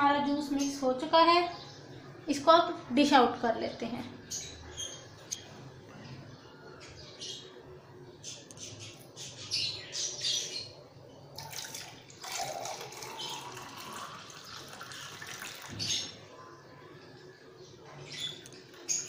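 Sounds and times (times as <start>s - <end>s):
juice splashing: 11.4s - 16.1s
liquid pouring into glass: 11.4s - 16.2s.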